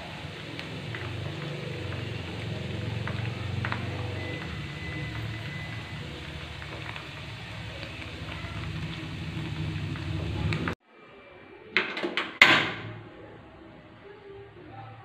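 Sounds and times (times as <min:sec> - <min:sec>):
food sizzling in frying pan: 0:00.0 - 0:10.8
low hum: 0:00.8 - 0:10.8.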